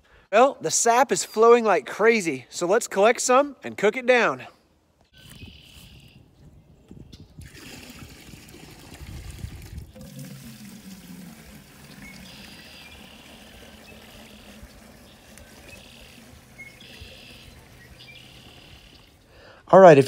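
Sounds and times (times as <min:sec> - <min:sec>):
liquid trickling into bucket: 0:07.4 - 0:19.1
bucket handling rumble: 0:07.4 - 0:19.2.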